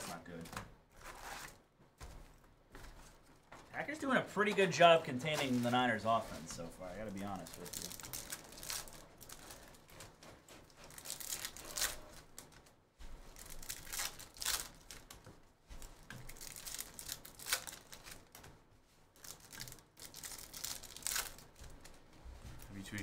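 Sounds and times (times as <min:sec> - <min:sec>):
foil wrappers tearing and crinkling: 0:06.9 - 0:12.6, 0:13.3 - 0:15.2, 0:15.8 - 0:18.4, 0:19.2 - 0:22.0.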